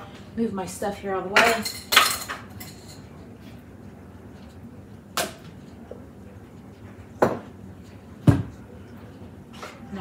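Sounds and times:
dish knocking on hard surface: 8.2 - 8.5.

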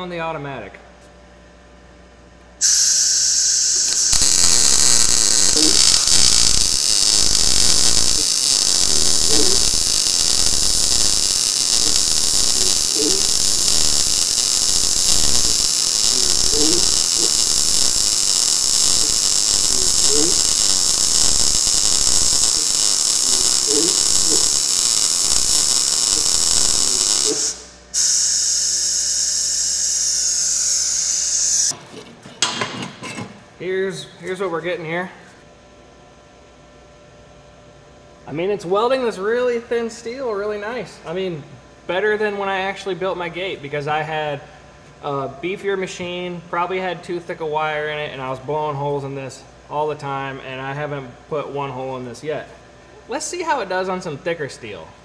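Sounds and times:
shielding gas hissing: 2.6 - 28.7
welding arc sizzling: 2.6 - 31.8.

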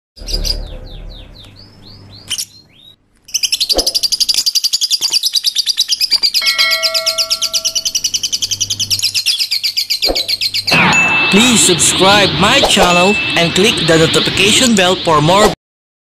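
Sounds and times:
small birds chirping: 0.2 - 10.8.

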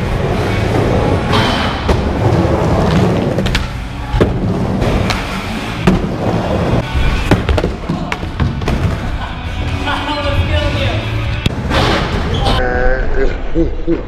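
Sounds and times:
skateboard wheels rolling on concrete: 0.0 - 9.2.

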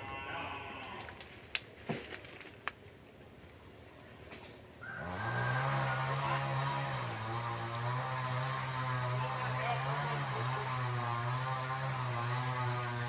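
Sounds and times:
chainsaw engine revving: 4.9 - 13.0.

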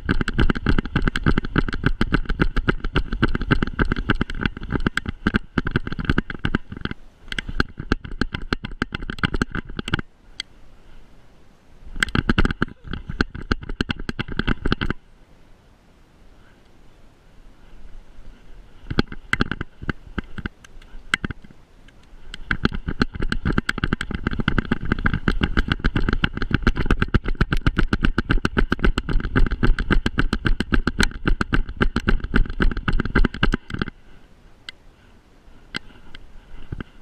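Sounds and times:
camera rattling in harness: 0.0 - 10.1, 11.9 - 15.0, 18.8 - 21.6, 22.2 - 34.0, 35.8 - 37.0.

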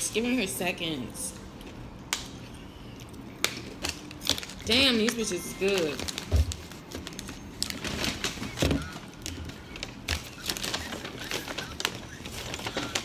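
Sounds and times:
food packaging crinkling: 3.1 - 13.0.

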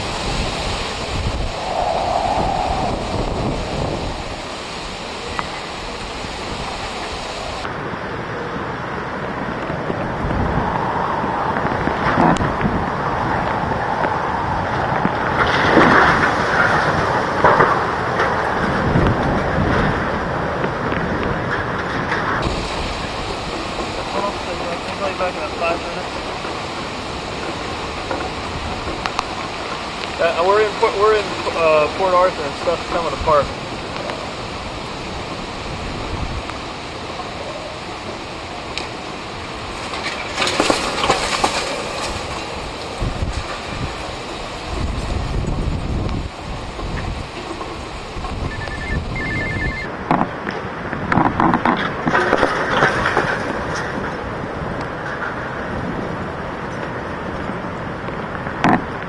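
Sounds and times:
driving rain: 0.0 - 59.0
strong wind buffeting microphone: 0.0 - 59.0
metal awning rattling and squealing: 47.7 - 49.9.

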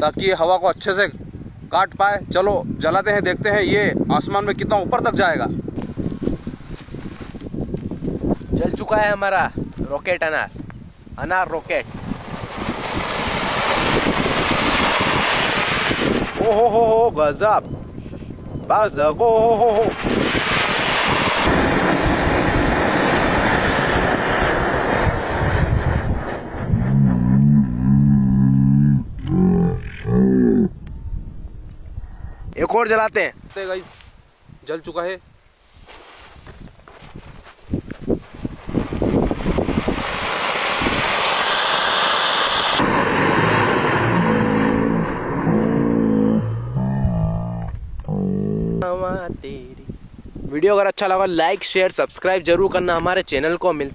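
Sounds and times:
firework fountain hissing: 11.5 - 16.6, 19.7 - 26.0, 38.2 - 44.0.

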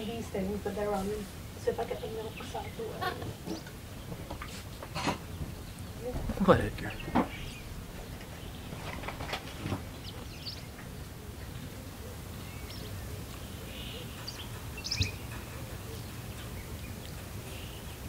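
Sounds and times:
low steady hum: 0.0 - 18.0
soft knocks: 4.0 - 10.9.

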